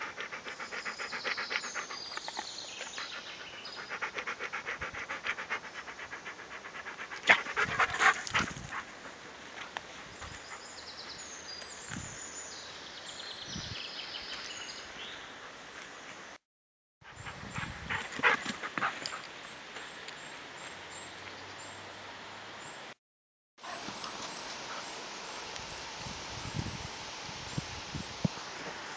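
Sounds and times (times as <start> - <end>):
dog panting: 0.0 - 9.2.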